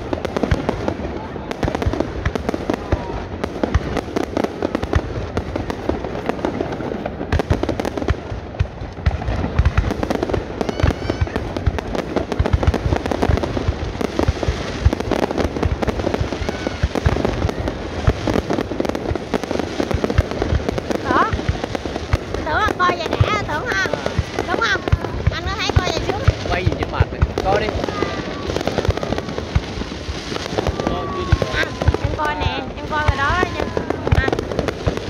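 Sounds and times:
fireworks bursting: 0.0s - 35.0s.

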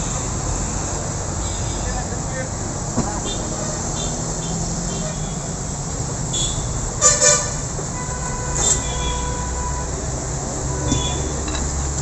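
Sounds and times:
low traffic rumble: 0.0s - 12.0s
horn toots: 6.3s - 9.9s
faint steady horn tone: 6.3s - 10.0s, 10.7s - 11.4s.

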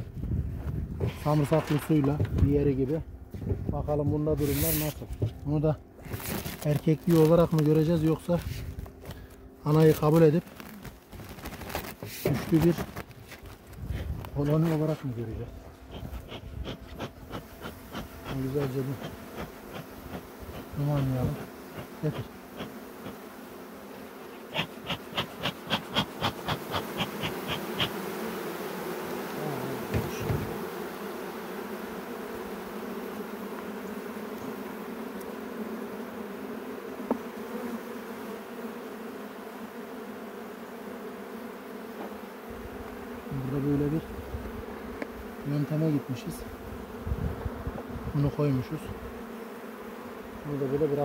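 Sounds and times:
honeybees buzzing: 0.0s - 51.0s
bellows puffing: 15.6s - 23.3s, 24.2s - 28.1s.

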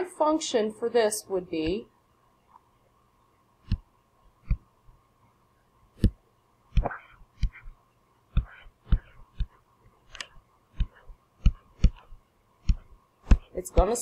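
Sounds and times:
stylus tapping on surface: 10.2s - 14.0s.

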